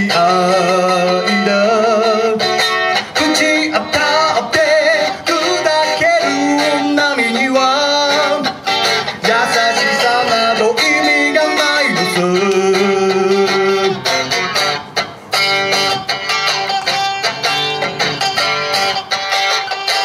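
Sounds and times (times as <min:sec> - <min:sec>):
man singing: 0:00.0 - 0:14.2
electric guitar: 0:00.0 - 0:20.0.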